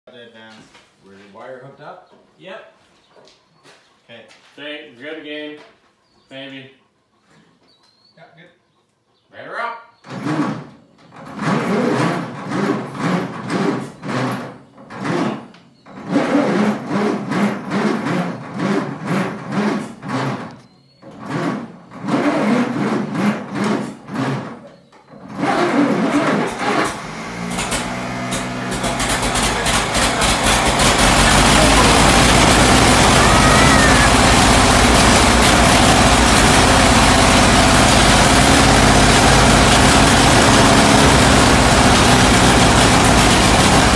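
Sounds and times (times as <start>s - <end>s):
engine cranking on starter: 10.1s - 24.6s, 25.2s - 43.9s
car engine running: 25.8s - 43.9s.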